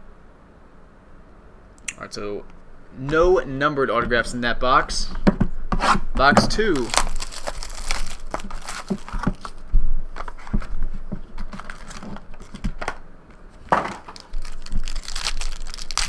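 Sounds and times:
taps and rustles: 0:05.1 - 0:07.6, 0:08.3 - 0:09.6, 0:10.2 - 0:14.5
plastic wrap crinkling: 0:06.6 - 0:09.6, 0:10.2 - 0:16.0
cardboard and foil being handled: 0:06.7 - 0:09.6, 0:10.2 - 0:12.9, 0:13.5 - 0:16.0.

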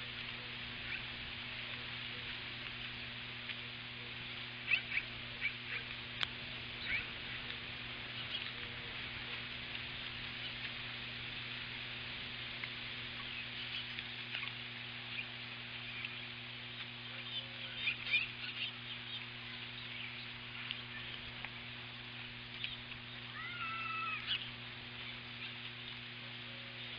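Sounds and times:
low steady hum: 0:00.0 - 0:26.9
steady hiss: 0:00.0 - 0:26.9
small clicks and ticks: 0:04.6 - 0:17.0, 0:18.0 - 0:23.3.

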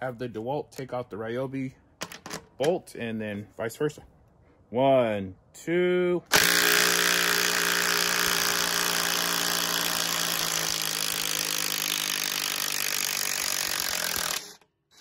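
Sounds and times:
impact driver hammering: 0:06.3 - 0:14.6.

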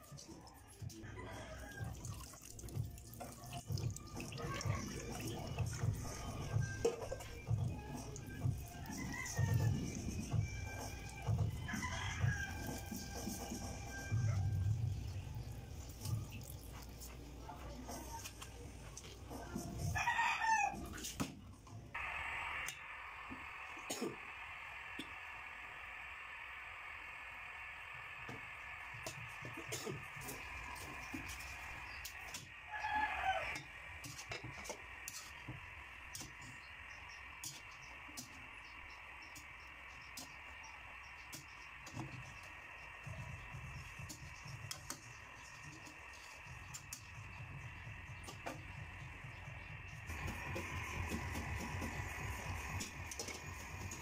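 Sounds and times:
gas stove burner hissing: 0:04.8 - 0:19.8, 0:21.9 - 0:54.0
utensils clicking and tapping: 0:50.1 - 0:54.0.

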